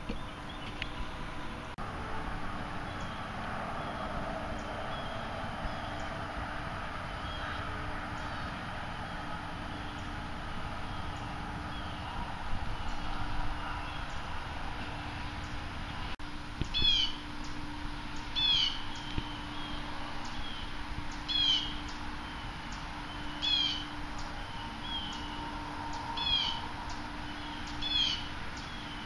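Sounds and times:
bird calling: 0:00.0 - 0:15.7, 0:16.6 - 0:29.0.

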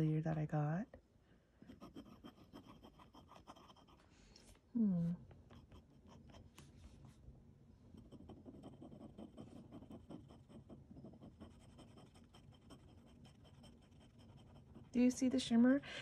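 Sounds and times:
pen nib scratching paper: 0:01.7 - 0:04.0, 0:05.4 - 0:06.7, 0:07.9 - 0:15.5.

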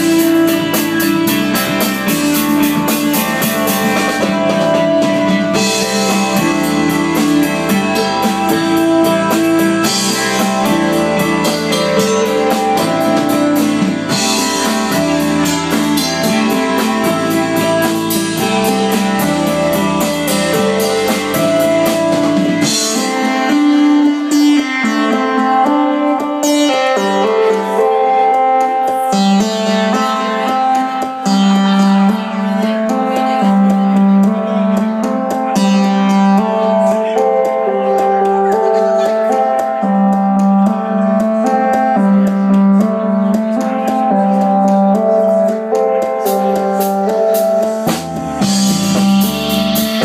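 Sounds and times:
pulsing bass: 0:00.0 - 0:24.6, 0:42.2 - 0:50.0
live rock band playing: 0:00.0 - 0:50.0.

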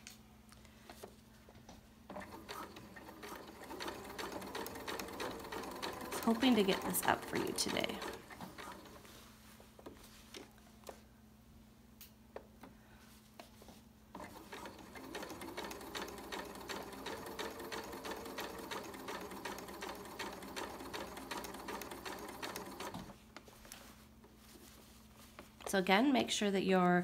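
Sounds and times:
sewing machine stitching: 0:02.1 - 0:09.1, 0:14.1 - 0:23.2.

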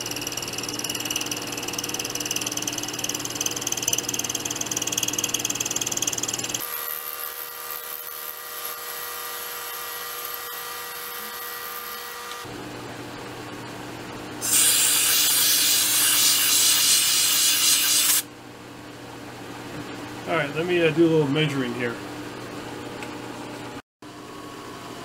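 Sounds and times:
milling machine whine: 0:00.0 - 0:12.5
hissing rasp of metal cutting: 0:14.4 - 0:18.2.

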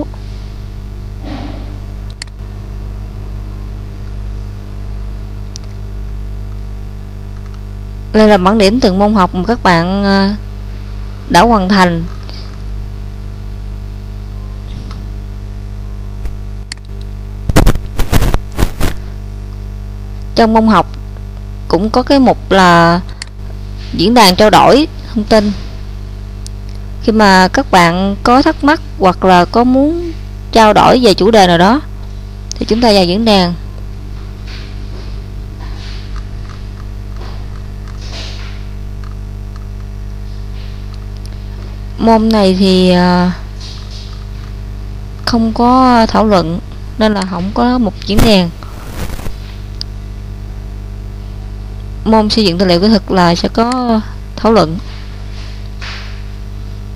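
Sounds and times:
electrical mains hum: 0:00.0 - 0:56.9
sharp crackles and knocks: 0:17.0 - 0:19.6, 0:34.1 - 0:42.0, 0:43.5 - 0:44.6, 0:47.3 - 0:50.0.

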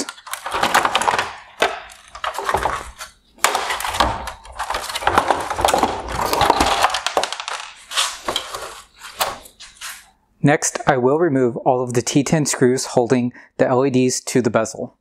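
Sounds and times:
plastic knocking and scraping on wood: 0:00.0 - 0:09.4.

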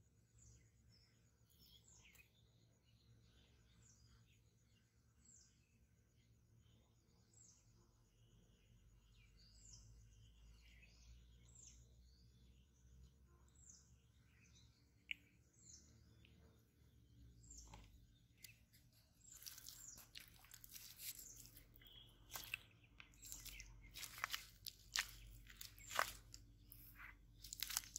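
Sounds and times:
faint bird chirps: 0:00.0 - 0:27.9
close rustling and crackling: 0:18.4 - 0:27.9.

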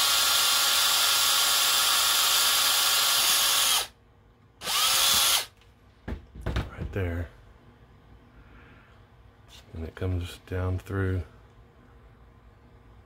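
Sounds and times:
cordless drill boring plastic: 0:00.0 - 0:03.9, 0:04.6 - 0:05.5.

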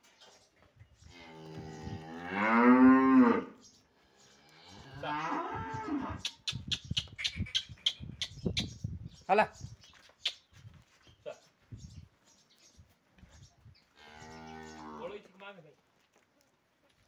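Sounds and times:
cow mooing: 0:01.2 - 0:03.6, 0:04.5 - 0:06.2.

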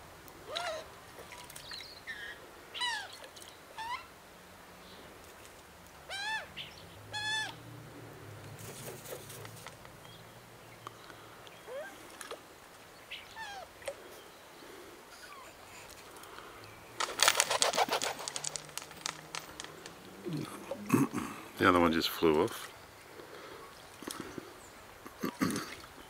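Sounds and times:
wings flapping: 0:17.0 - 0:20.0
bird splashing in water: 0:17.0 - 0:20.2.

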